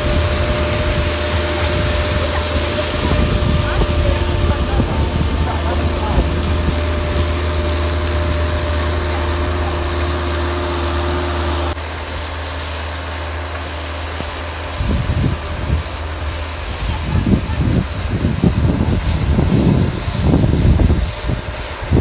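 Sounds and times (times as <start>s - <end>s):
wind buffeting microphone: 0.0s - 9.9s, 14.7s - 22.0s
higher engine tone: 0.0s - 17.8s
loader engine running: 0.0s - 22.0s.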